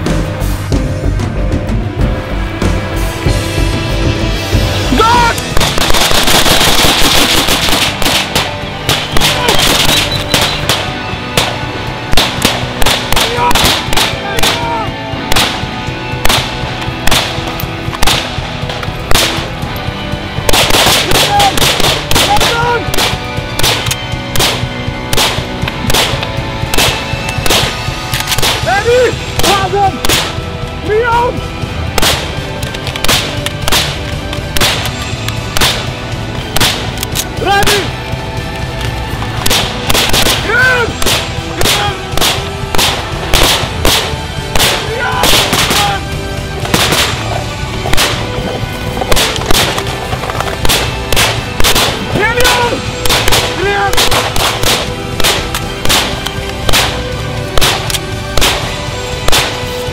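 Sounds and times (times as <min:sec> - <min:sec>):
background music: 0:00.0 - 0:59.9
rifle shots: 0:05.4 - 0:14.6, 0:15.3 - 0:19.5, 0:20.4 - 0:28.7, 0:29.4 - 0:30.4, 0:31.9 - 0:32.4, 0:33.0 - 0:35.9, 0:36.5 - 0:37.0, 0:39.4 - 0:40.4, 0:41.0 - 0:46.0, 0:46.6 - 0:47.2, 0:47.8 - 0:48.4, 0:49.0 - 0:52.1, 0:53.0 - 0:59.7.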